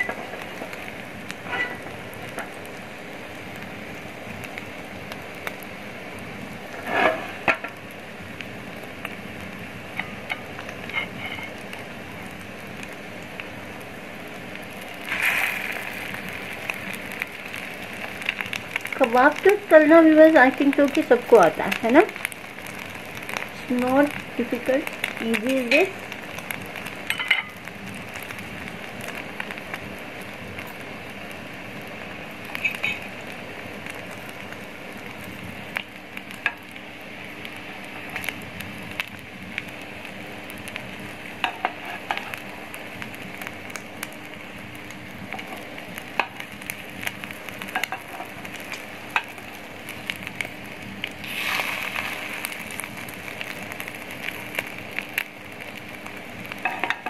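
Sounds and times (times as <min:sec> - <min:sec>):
patties sizzling in a pan: 0:00.0 - 0:57.0
spoon scraping a pan: 0:01.5 - 0:01.9, 0:06.8 - 0:07.4, 0:10.9 - 0:11.6.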